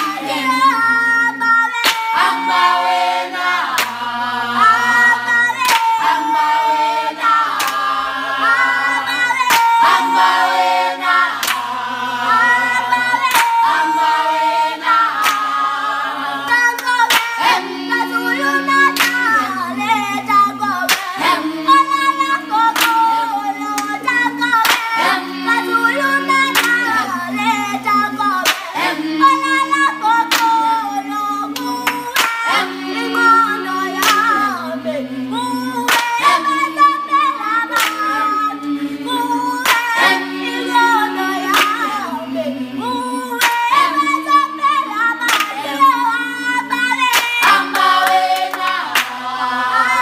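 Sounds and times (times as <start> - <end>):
children singing in harmony: 0.0 - 50.0
hands clapping in time: 1.7 - 4.2, 5.3 - 8.1, 9.0 - 11.8, 13.0 - 15.7, 16.5 - 34.6, 35.7 - 42.2, 43.3 - 50.0
sharp hand clap: 1.8 - 3.0, 3.6 - 4.1, 5.6 - 8.0, 9.4 - 10.6, 11.3 - 11.7, 13.2 - 14.4, 15.1 - 15.7, 16.7 - 17.7, 18.6 - 19.5, 20.9 - 21.3, 22.7 - 23.2, 24.6 - 25.1, 26.2 - 26.9, 28.4 - 28.8, 30.3 - 30.6, 31.6 - 33.2, 34.0 - 34.4, 35.9 - 36.6, 37.7 - 38.2, 39.6 - 40.1, 41.5 - 41.9, 43.4 - 44.0, 45.2 - 45.8, 47.0 - 49.3.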